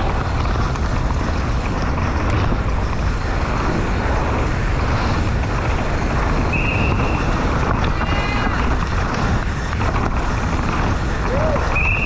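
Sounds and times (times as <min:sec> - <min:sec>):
bike tyres rumbling over dirt: 0:00.0 - 0:12.0
wind rushing over microphone: 0:00.0 - 0:12.0.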